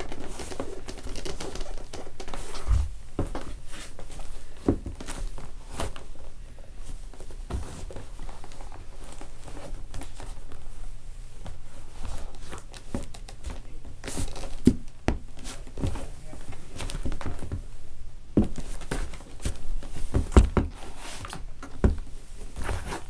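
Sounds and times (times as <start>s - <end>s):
boots stomping on hardwood floor: 4.6s - 5.2s, 14.3s - 16.0s, 18.4s - 20.8s, 21.6s - 22.1s.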